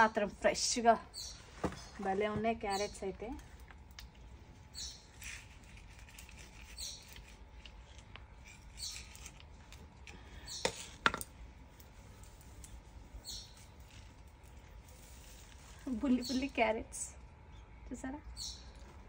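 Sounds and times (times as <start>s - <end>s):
rustles and scrapes in soil: 1.2s - 10.0s, 11.6s - 16.8s.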